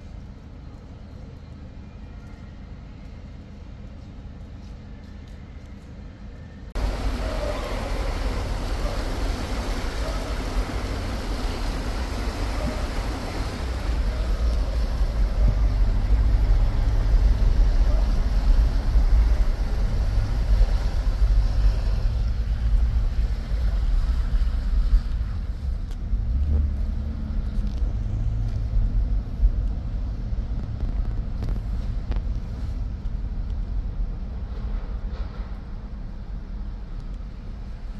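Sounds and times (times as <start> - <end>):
car engine rumble: 6.7 - 37.9
water splashing off wheels: 6.8 - 25.8.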